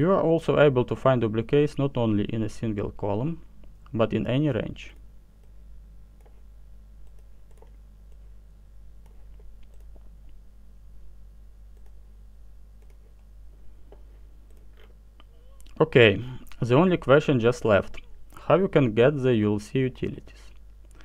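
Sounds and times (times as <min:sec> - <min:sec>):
steady low hum: 0:00.0 - 0:21.0
computer mouse clicks: 0:07.0 - 0:08.3, 0:09.0 - 0:10.4, 0:11.8 - 0:12.0, 0:12.8 - 0:13.3, 0:13.9 - 0:15.0.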